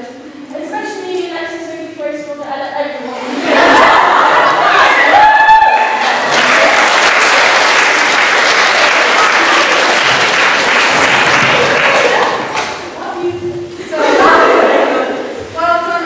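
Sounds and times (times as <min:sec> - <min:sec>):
audience applauding: 0:04.8 - 0:12.8.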